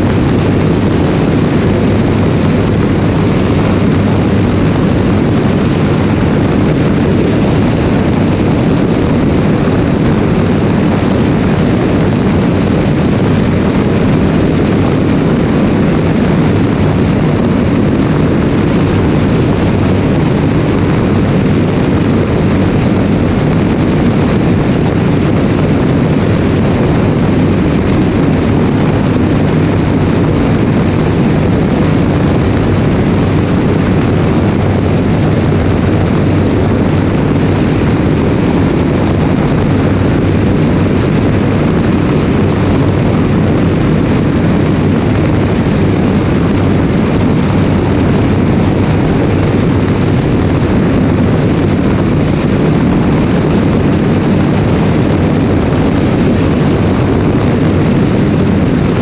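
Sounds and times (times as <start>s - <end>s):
aircraft engine and propeller drone: 0.0s - 59.0s
airflow rushing: 0.0s - 59.0s.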